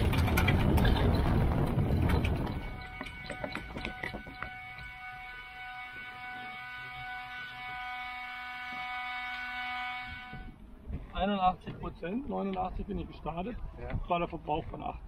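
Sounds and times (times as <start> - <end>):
electric motor whine: 2.6 - 10.6.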